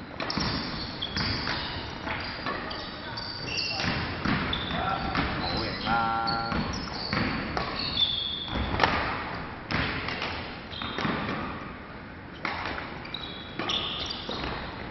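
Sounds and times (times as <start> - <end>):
shoes squeaking on wooden floor: 0.3 - 8.8, 13.0 - 14.8
racket hitting shuttlecock: 8.5 - 11.7, 12.4 - 13.0.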